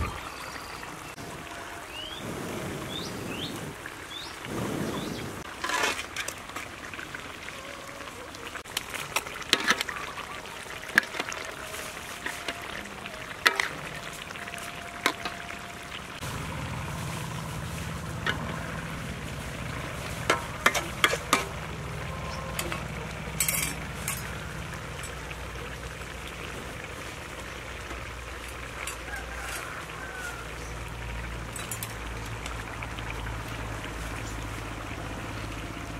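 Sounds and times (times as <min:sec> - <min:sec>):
broth simmering: 0:00.0 - 0:35.9
metal ladle scraping wok: 0:05.4 - 0:06.7, 0:13.4 - 0:14.4, 0:16.9 - 0:25.2
steady low rumble: 0:16.2 - 0:25.7.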